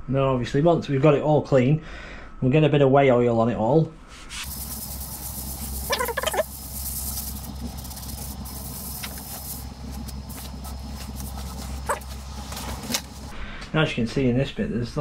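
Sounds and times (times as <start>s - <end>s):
rag wiping metal: 4.2s - 13.3s
scouring pad scrubbing metal: 4.3s - 13.3s
low hum: 4.3s - 13.6s
squeaky warble: 5.6s - 8.6s.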